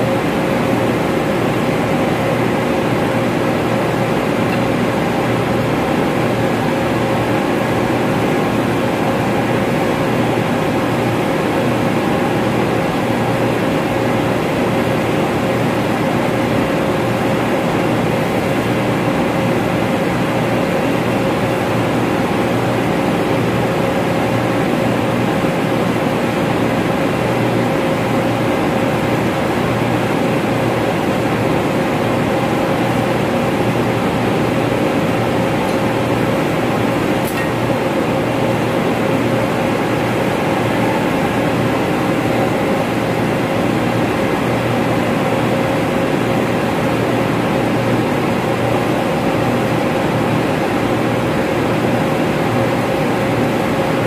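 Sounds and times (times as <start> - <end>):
air-handling machinery drone: 0.0 - 54.0.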